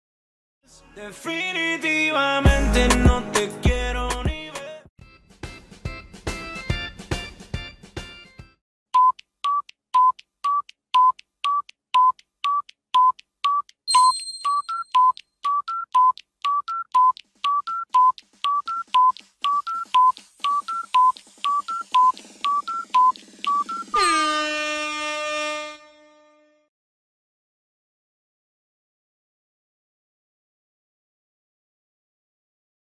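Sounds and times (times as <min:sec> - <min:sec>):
electronic timer beeps: 0:09.0 - 0:24.8
bright chime: 0:13.9 - 0:14.9.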